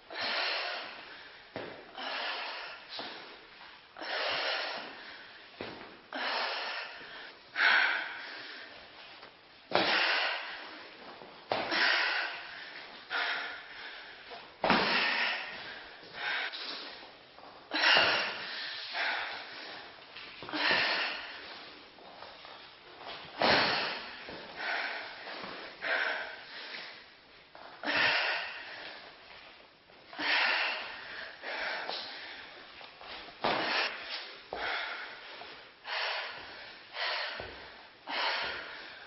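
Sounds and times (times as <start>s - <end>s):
woman breathing forcefully: 0.0s - 39.0s.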